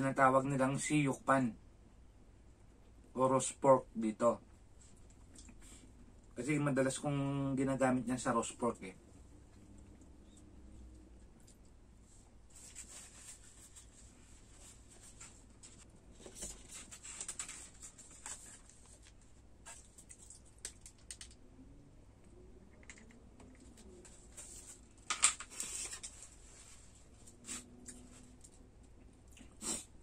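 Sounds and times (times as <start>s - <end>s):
paper tissue rustling and crumpling: 12.5s - 20.0s.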